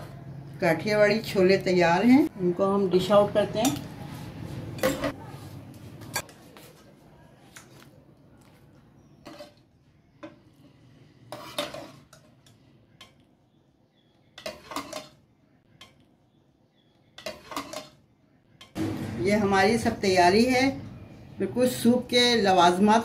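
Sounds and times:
ladle clinking and scraping: 9.2 - 10.4, 11.2 - 13.2, 14.3 - 16.0, 17.1 - 18.8.

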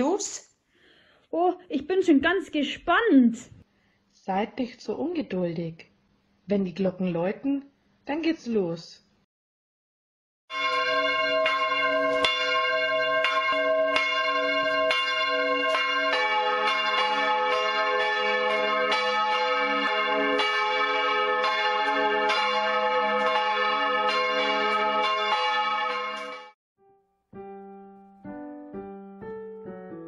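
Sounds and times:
lower bell ringing: 10.5 - 26.5
church bells pealing: 10.5 - 26.6.

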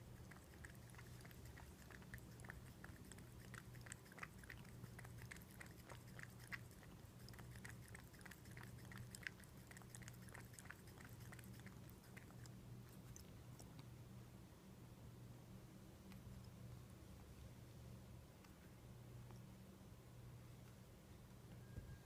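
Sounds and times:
cat lapping water: 0.0 - 13.9.

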